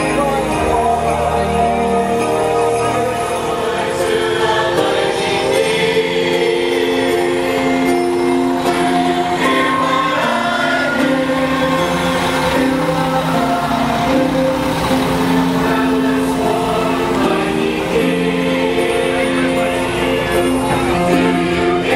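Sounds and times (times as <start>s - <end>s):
choir singing a carol: 0.0s - 21.9s
music: 0.0s - 21.9s.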